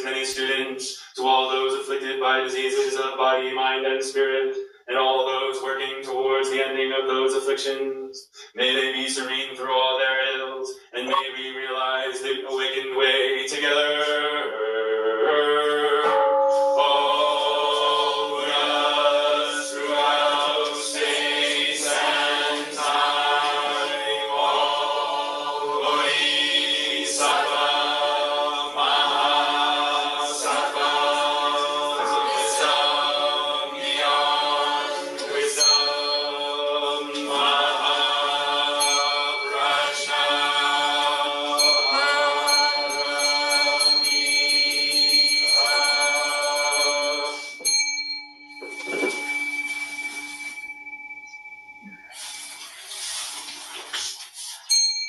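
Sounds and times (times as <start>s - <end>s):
group chanting in unison: 16.8s - 43.9s.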